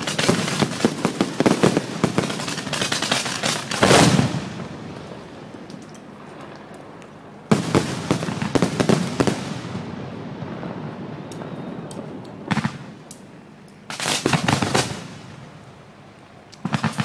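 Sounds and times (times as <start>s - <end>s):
firework bang: 0.0s - 5.0s
rapid barrage of firework reports: 0.0s - 5.0s, 7.5s - 13.1s, 13.9s - 15.4s, 16.6s - 17.0s
faint fireworks crackling: 0.0s - 17.0s.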